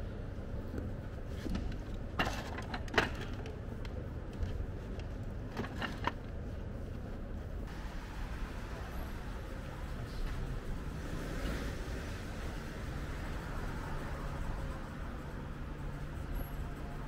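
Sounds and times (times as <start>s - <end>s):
restaurant and street background noise: 7.7s - 17.0s.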